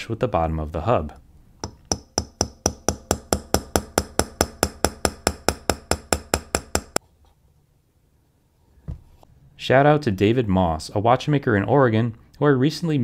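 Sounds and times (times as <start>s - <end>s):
hammer tapping steel punch: 1.6s - 7.0s.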